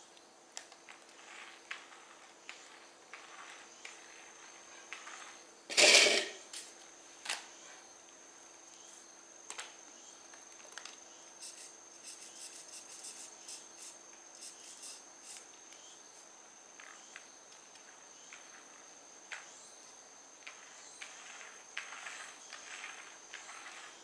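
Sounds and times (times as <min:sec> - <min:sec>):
faint high whine: 0:00.0 - 0:24.0
rustling scrape on concrete: 0:00.9 - 0:06.7, 0:20.4 - 0:24.0.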